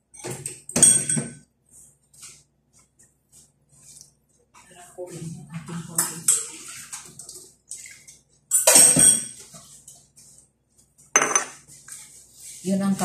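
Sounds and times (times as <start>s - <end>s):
utensils and cookware clattering: 0.1s - 1.4s, 5.6s - 10.2s, 11.1s - 12.2s.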